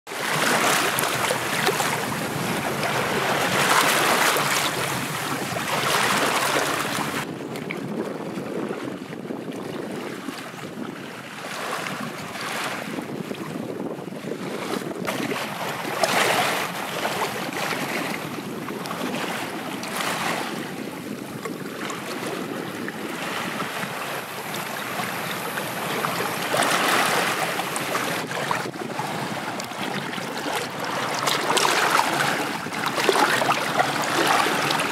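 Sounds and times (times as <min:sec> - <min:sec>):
water splashing: 0:00.1 - 0:07.3, 0:14.5 - 0:34.9
waves lapping over rocks: 0:00.1 - 0:34.9.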